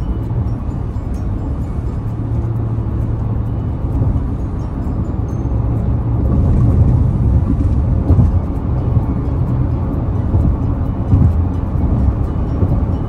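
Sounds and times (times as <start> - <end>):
car road and engine rumble: 0.0 - 13.0.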